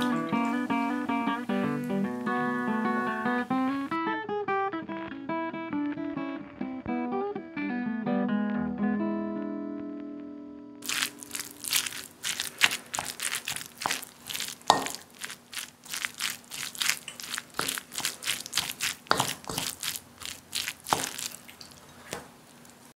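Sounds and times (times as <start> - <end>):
wooden spoon scraping a bowl: 11.7 - 22.3.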